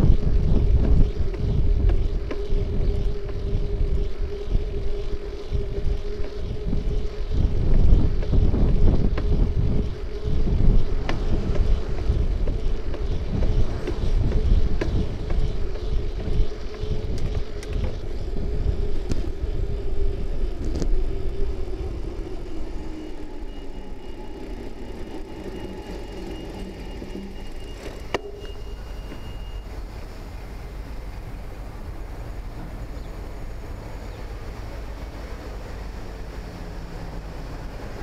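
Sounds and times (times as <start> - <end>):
bicycle clicks and rattles: 0.0 - 29.3
steady hum: 0.0 - 38.0
tyres rumbling on road: 0.0 - 38.0
wind buffeting microphone: 0.0 - 38.0.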